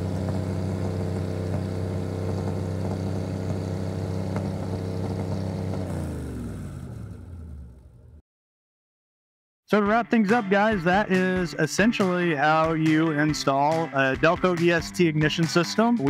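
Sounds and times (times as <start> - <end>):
boat engine running and winding down: 0.0 - 8.2.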